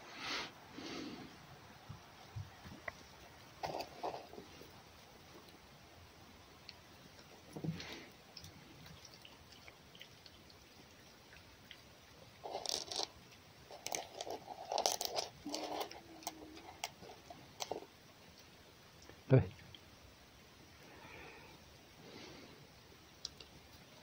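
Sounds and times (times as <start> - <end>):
fox chewing and crunching food: 0.8 - 21.1, 21.8 - 24.0.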